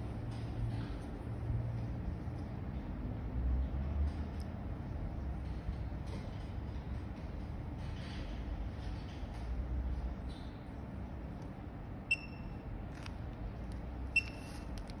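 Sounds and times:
steady low hum: 0:00.0 - 0:15.0
short electronic beeps: 0:12.1 - 0:12.6, 0:14.1 - 0:14.6.

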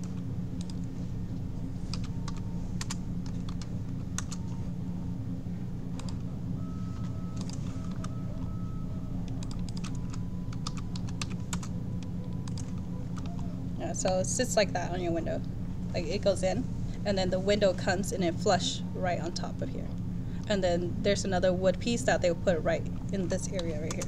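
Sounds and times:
steady low hum: 0:00.0 - 0:24.0
keyboard and mouse clicking: 0:01.9 - 0:04.4, 0:07.4 - 0:08.2, 0:09.2 - 0:11.7, 0:12.3 - 0:13.5.

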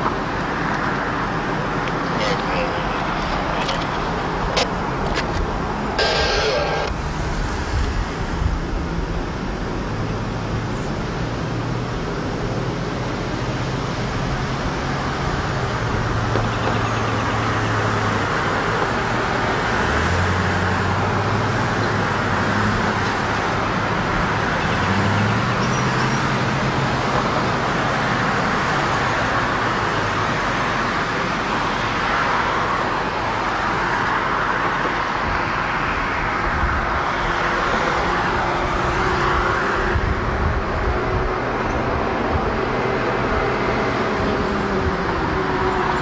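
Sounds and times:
distant locomotive engine hum: 0:00.0 - 0:46.0
steady noise: 0:01.2 - 0:08.2.

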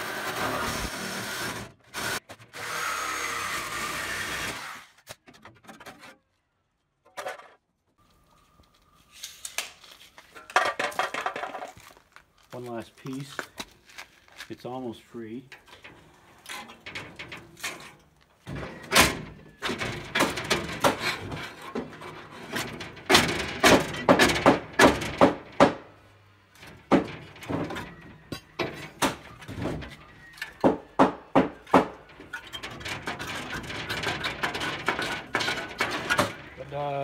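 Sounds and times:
sheet metal bending and tearing: 0:15.6 - 0:25.6, 0:26.6 - 0:30.6, 0:31.6 - 0:37.0.

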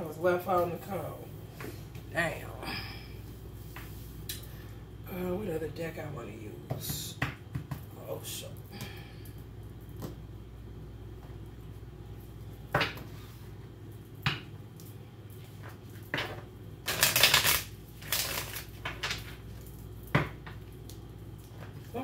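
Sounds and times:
cards shuffling: 0:16.9 - 0:19.3.

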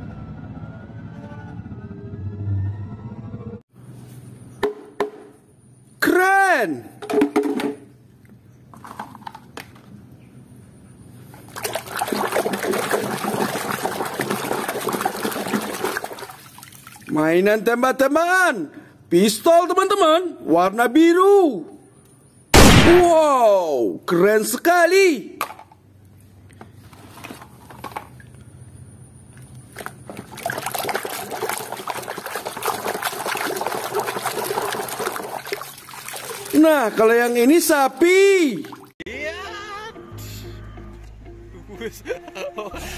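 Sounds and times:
plastic toys knocking in basket: 0:07.0 - 0:07.8
water sloshing and splashing: 0:11.3 - 0:17.2, 0:29.6 - 0:39.0
hand splashing in water: 0:30.2 - 0:36.6.

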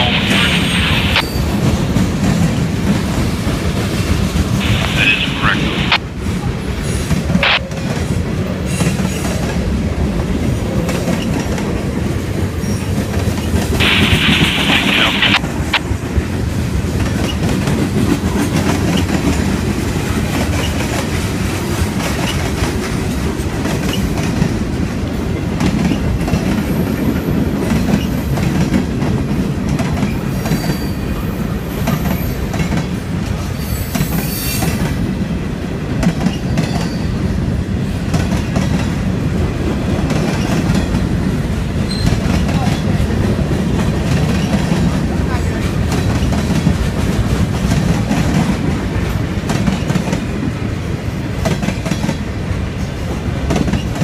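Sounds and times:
freight train rumbling past: 0:00.0 - 0:54.0
brief hiss: 0:13.8 - 0:15.4.

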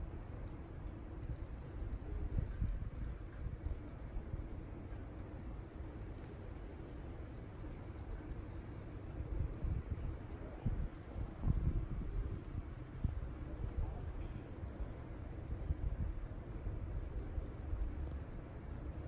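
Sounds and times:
flock of birds twittering: 0:00.0 - 0:12.2, 0:12.9 - 0:16.2, 0:17.1 - 0:19.0.

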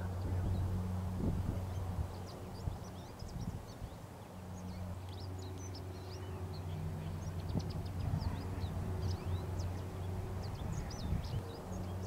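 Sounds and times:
small birds chirping: 0:00.0 - 0:12.0
steady low hum: 0:00.0 - 0:12.0.

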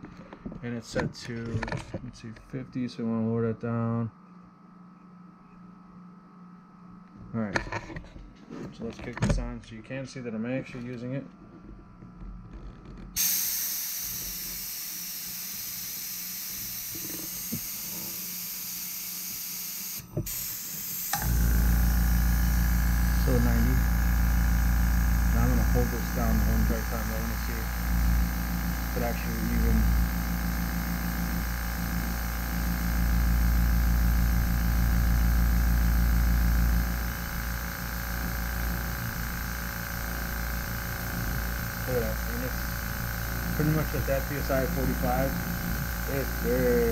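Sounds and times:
air compressor pulsing hum: 0:11.4 - 0:46.9.

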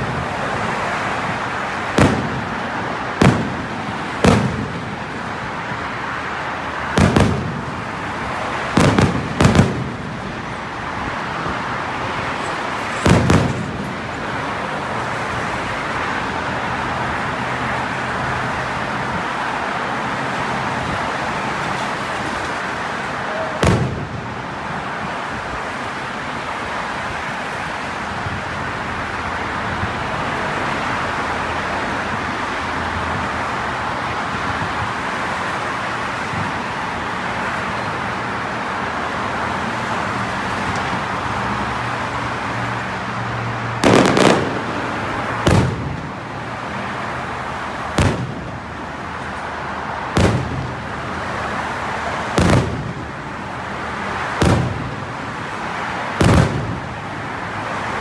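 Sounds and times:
steady background din: 0:01.2 - 0:11.0
firework shells bursting: 0:02.0 - 0:04.8, 0:06.9 - 0:07.8, 0:08.8 - 0:10.0, 0:12.9 - 0:14.0, 0:43.8 - 0:46.1, 0:47.9 - 0:48.5.

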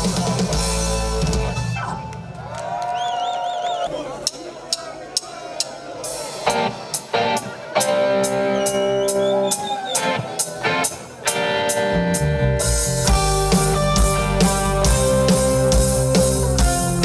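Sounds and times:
drum kit: 0:00.0 - 0:02.0, 0:04.2 - 0:17.0
bass guitar: 0:00.0 - 0:02.3, 0:06.5 - 0:17.0
electric guitar chords: 0:06.4 - 0:17.0.

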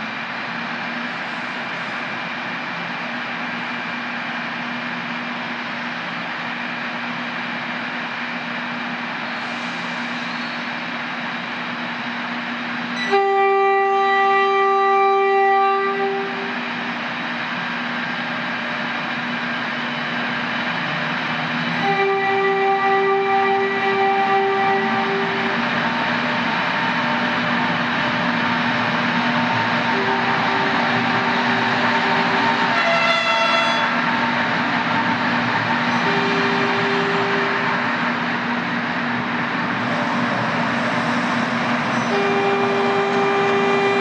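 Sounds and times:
train mechanical hum: 0:00.0 - 0:44.0
train horn long note: 0:13.0 - 0:16.6, 0:21.8 - 0:25.6, 0:29.9 - 0:31.3, 0:32.0 - 0:34.1, 0:36.0 - 0:37.8, 0:42.0 - 0:44.0.

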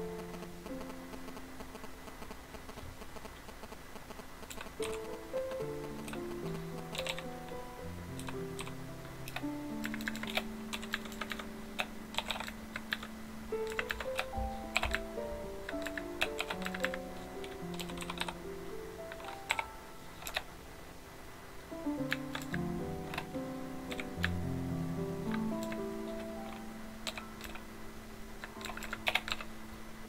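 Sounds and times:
background music with sustained notes: 0:04.8 - 0:30.0
keyboard key clicks: 0:28.4 - 0:29.4.

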